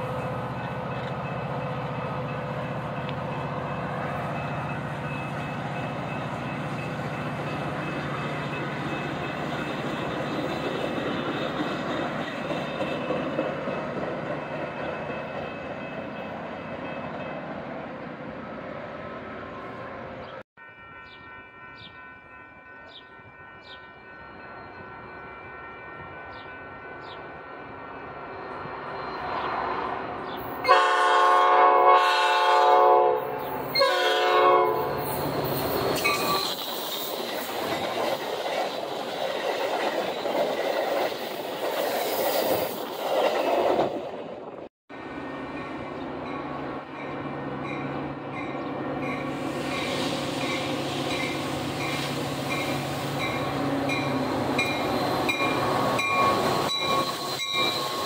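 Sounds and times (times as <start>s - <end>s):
train wheels rumbling and clattering: 0.0s - 17.3s, 34.8s - 44.7s
low locomotive engine hum: 0.0s - 41.8s
train horn blasts: 30.6s - 35.1s.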